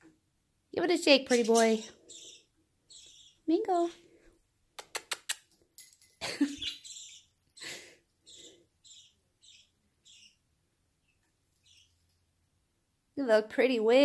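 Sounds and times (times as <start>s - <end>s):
bird chirping: 1.0s - 4.0s, 6.2s - 12.3s
sharp clicks: 4.8s - 5.5s.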